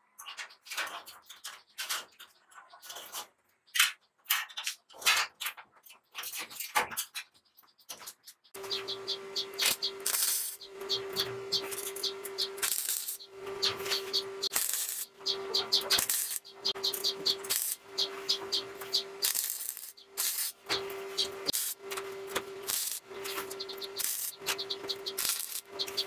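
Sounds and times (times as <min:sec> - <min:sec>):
stick welder crackling and sizzling: 0:08.6 - 0:26.0
welder hum: 0:08.6 - 0:26.0.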